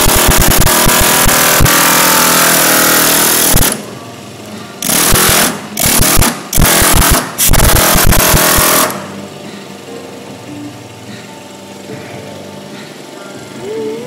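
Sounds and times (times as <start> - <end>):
pneumatic air hammer on metal: 0.0 - 3.9, 4.5 - 9.6.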